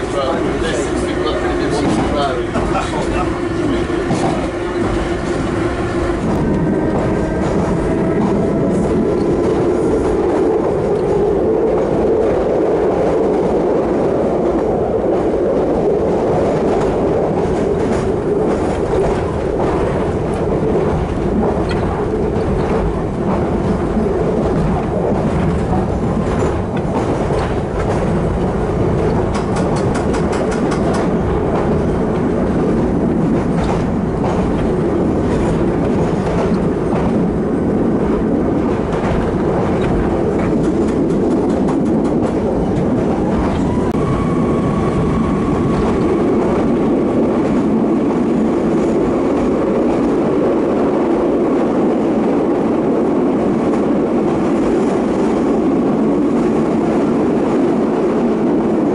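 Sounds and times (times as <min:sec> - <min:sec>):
clickety-clack of rail joints: 0:00.0 - 0:58.9
train wheels rumbling on rail: 0:00.0 - 0:58.9
whining tone: 0:43.1 - 0:46.8.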